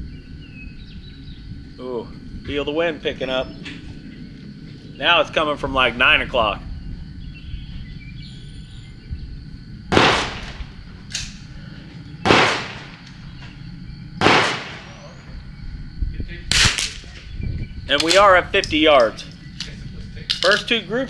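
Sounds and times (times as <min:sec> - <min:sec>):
light wind noise: 0:00.0 - 0:21.0
rifle shots with echo: 0:09.9 - 0:10.8, 0:12.2 - 0:13.2, 0:14.2 - 0:15.2
sharp crack: 0:09.9 - 0:11.5, 0:12.2 - 0:13.3, 0:14.2 - 0:15.2, 0:16.5 - 0:17.2.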